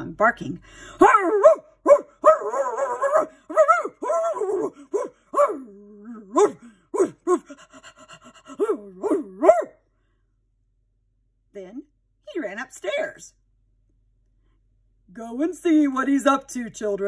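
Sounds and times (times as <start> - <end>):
dog barking: 1.0 - 7.6, 8.5 - 9.8
dog wavering call: 1.0 - 7.6, 8.5 - 9.7.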